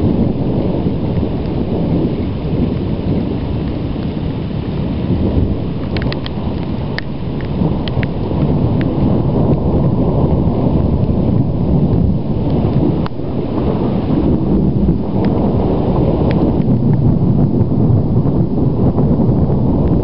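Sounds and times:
low rumbling thunder: 0.0 - 20.0
faint sharp ticks: 5.8 - 8.9.

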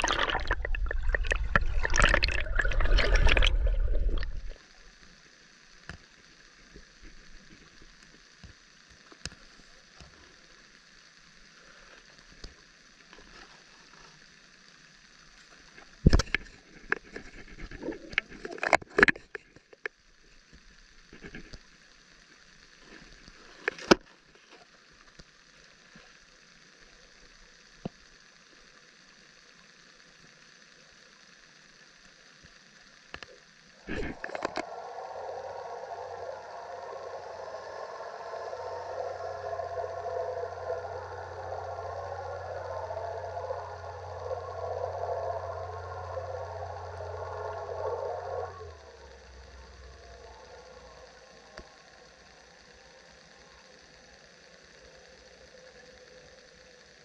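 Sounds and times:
water sloshing and gurgling: 0.0 - 4.7, 33.9 - 50.8
faint underwater hiss: 0.0 - 57.0.

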